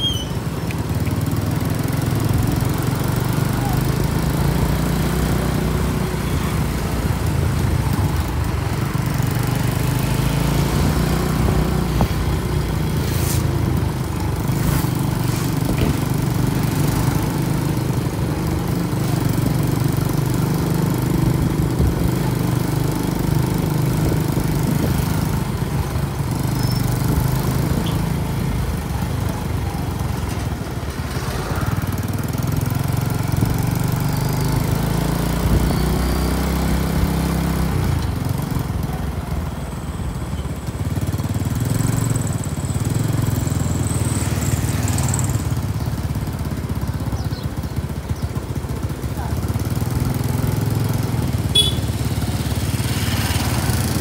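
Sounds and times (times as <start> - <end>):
engine running steadily: 6.0 - 31.8, 44.8 - 54.0.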